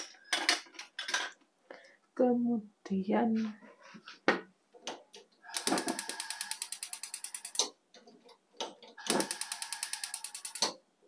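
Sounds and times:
gas hob igniter clicking rapidly: 9.0 - 10.7.

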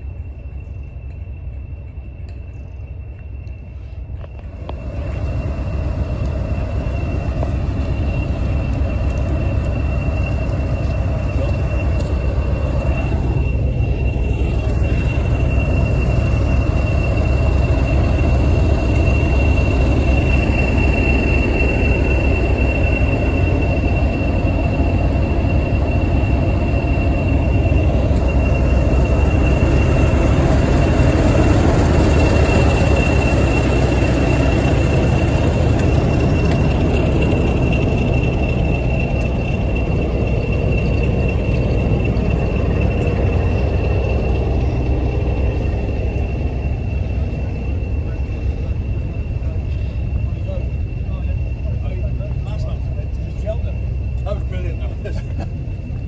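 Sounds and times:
diesel engine deep drone: 0.0 - 56.0
turbocharger whistle: 5.2 - 49.4.

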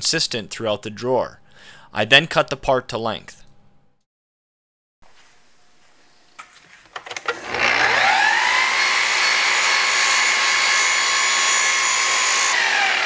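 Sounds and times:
miter saw whining: 7.2 - 13.0.

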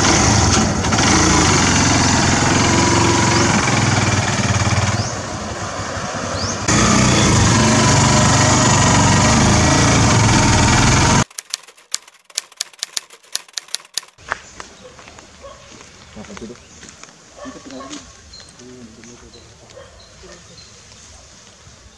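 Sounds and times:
tricycle engine running: 0.0 - 14.2.

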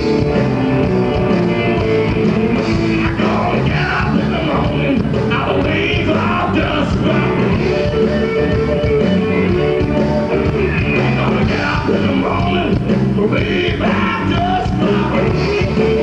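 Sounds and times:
guitars: 0.0 - 16.0
person singing through pa: 2.7 - 7.6, 10.4 - 16.0.

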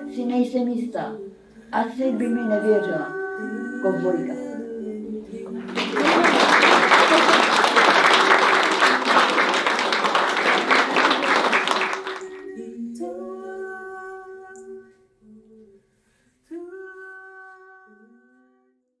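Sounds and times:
applause: 5.6 - 12.4.

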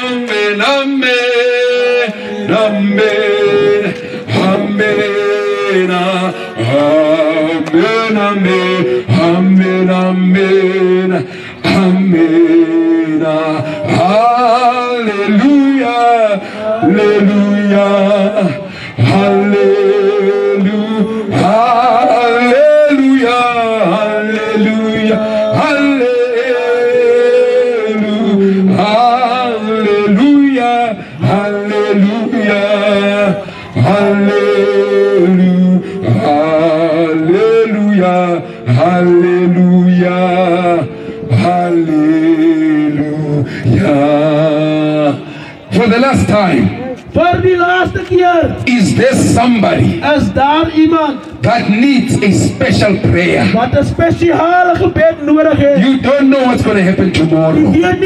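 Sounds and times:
men singing gospel song: 0.0 - 45.9.

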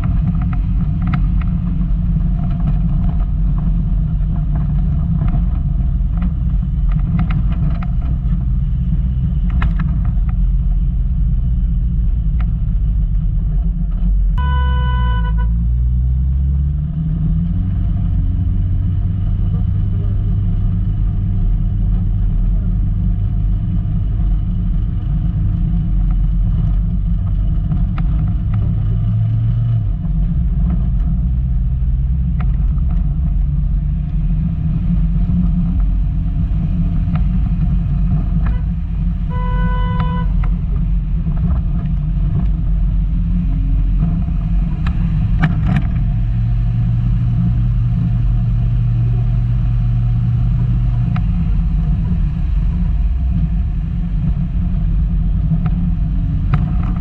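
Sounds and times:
car engine droning: 0.0 - 57.0
car horn toot: 14.4 - 15.6, 39.3 - 40.4.

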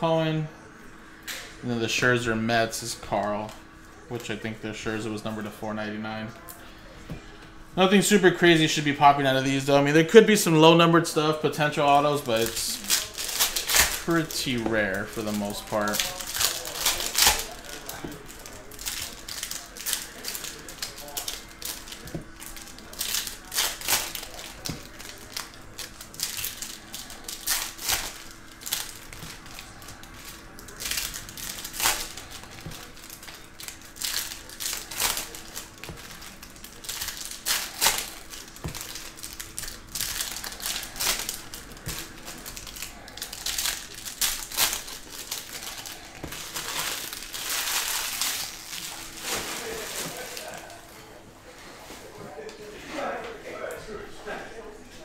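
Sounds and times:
foil wrappers crinkling: 10.6 - 51.2.

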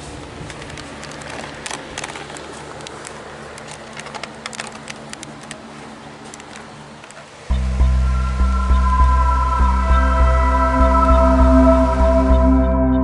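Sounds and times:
light clicks and crackles: 0.0 - 7.4
electric fan humming: 0.0 - 12.6.

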